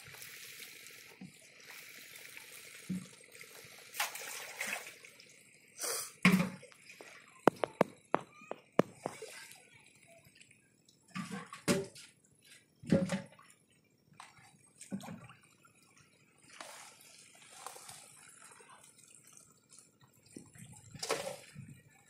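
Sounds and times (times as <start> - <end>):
water splashing and sloshing: 0.0 - 22.0
bowl scooping water: 2.9 - 5.1.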